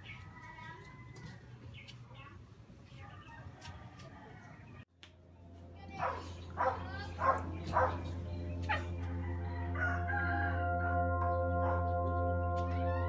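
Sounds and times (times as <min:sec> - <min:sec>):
low hum: 0:05.1 - 0:13.0
sustained drone tones: 0:05.1 - 0:13.0
rooster crowing: 0:09.0 - 0:11.2.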